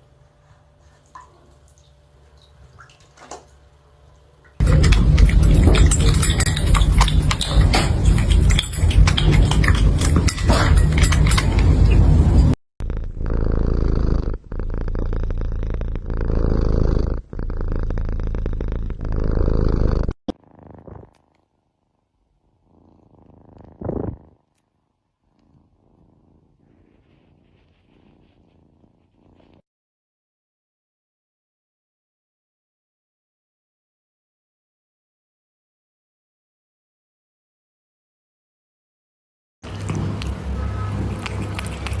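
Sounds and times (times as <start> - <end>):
cat purring: 4.6 - 29.6, 39.7 - 42.0.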